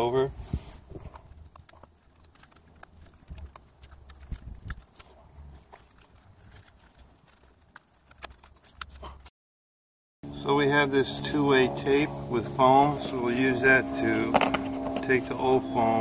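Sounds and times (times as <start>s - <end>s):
steady low rumble: 10.3s - 16.0s.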